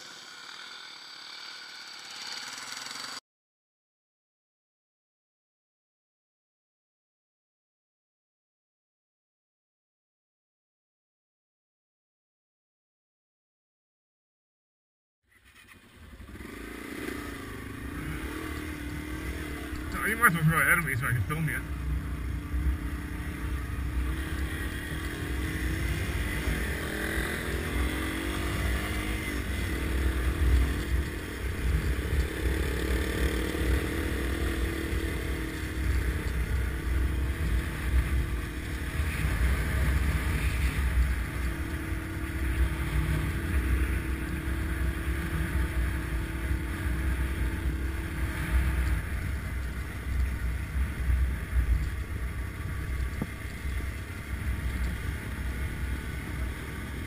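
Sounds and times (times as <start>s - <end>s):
motorcycle engine running: 0.0s - 3.2s, 15.3s - 57.0s.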